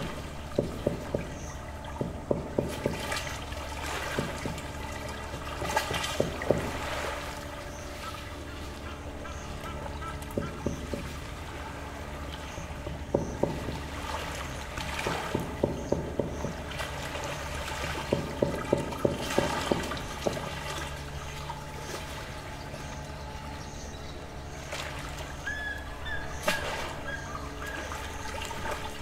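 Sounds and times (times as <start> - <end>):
low steady hum: 0.0 - 29.0
waves lapping against shore: 0.0 - 29.0
bird chirp: 22.6 - 28.8.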